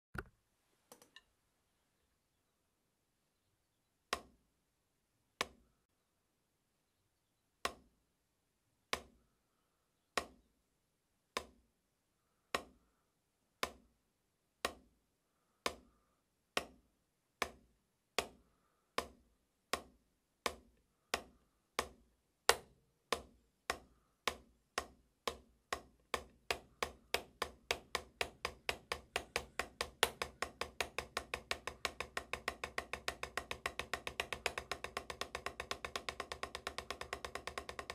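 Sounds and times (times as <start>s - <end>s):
drumsticks striking a practice pad: 19.0s - 37.9s.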